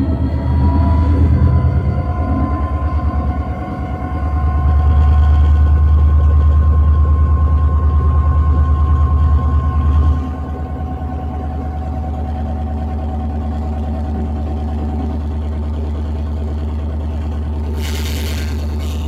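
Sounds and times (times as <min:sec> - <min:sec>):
locomotive diesel engine running: 0:00.0 - 0:19.0
brief hiss: 0:17.8 - 0:19.0.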